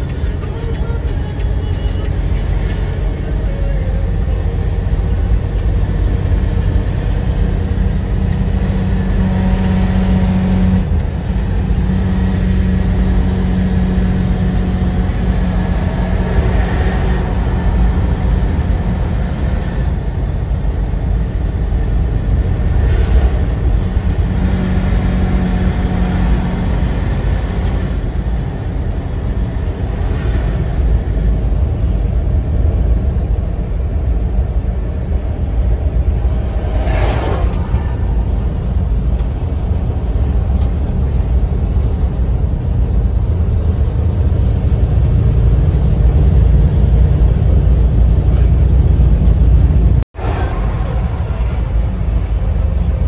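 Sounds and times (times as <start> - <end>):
road rumble: 0.0 - 53.0
truck engine drone: 0.0 - 53.0.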